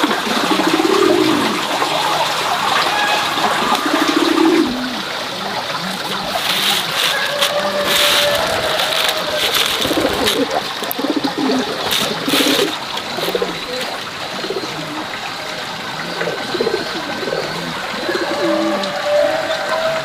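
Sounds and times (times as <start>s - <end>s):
birds cooing: 0.0s - 20.0s
seeds rattling in bamboo tray: 6.0s - 13.9s.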